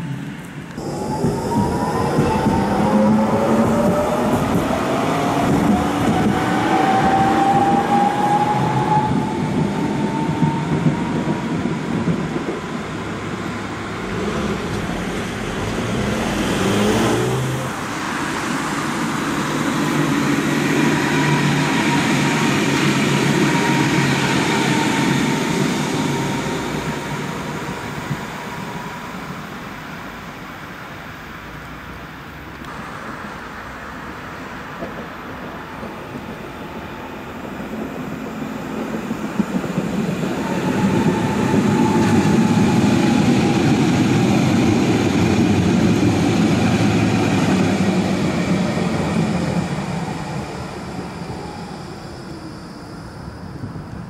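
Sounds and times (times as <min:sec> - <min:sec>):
tram passing on tracks: 0:00.0 - 0:54.0
road vehicles passing: 0:13.0 - 0:20.6.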